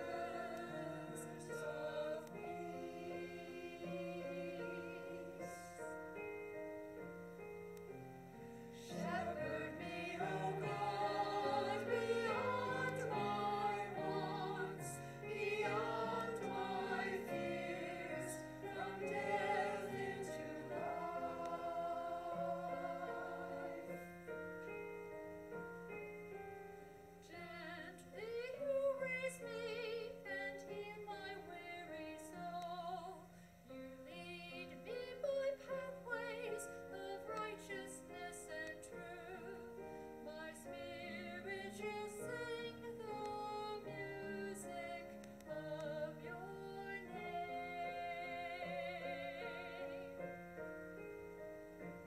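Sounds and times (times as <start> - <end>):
choir singing with vibrato: 0.0 - 6.1, 8.7 - 24.4, 34.4 - 50.4
piano chords: 0.0 - 52.0.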